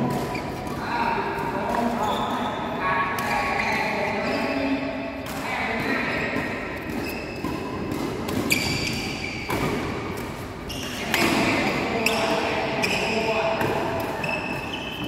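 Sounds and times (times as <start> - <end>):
rackets hitting shuttlecock: 0.0 - 0.8, 5.2 - 15.0.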